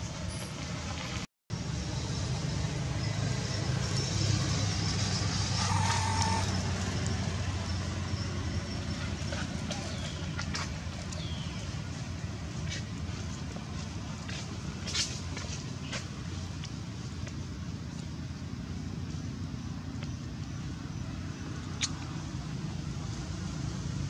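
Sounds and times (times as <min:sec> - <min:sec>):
faint high chirps: 0:05.6 - 0:06.5.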